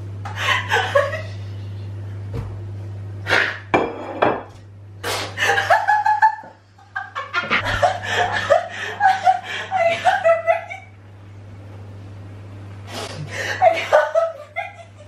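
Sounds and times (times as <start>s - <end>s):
woman laughing hard: 0.4s - 1.4s, 5.4s - 10.9s, 13.3s - 15.0s.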